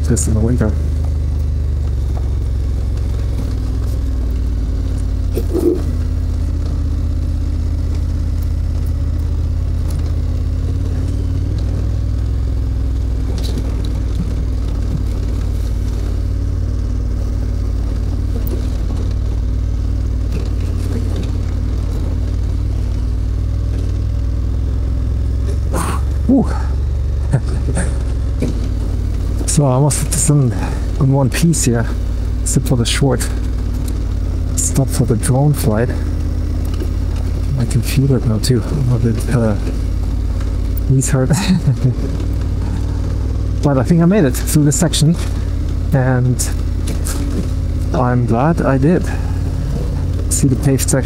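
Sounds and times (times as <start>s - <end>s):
motorcycle engine running: 0.0s - 51.0s.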